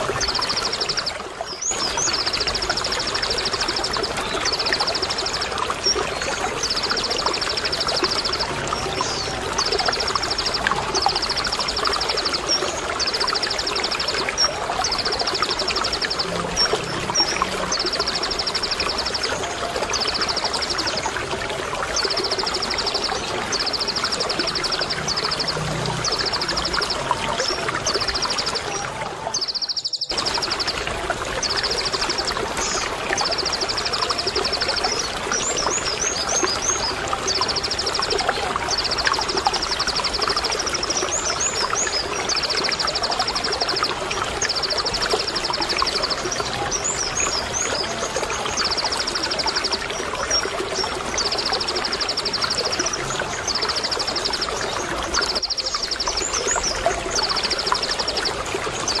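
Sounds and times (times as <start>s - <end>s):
bird trilling song: 0.0s - 21.1s, 21.9s - 30.8s
running water: 0.0s - 59.0s.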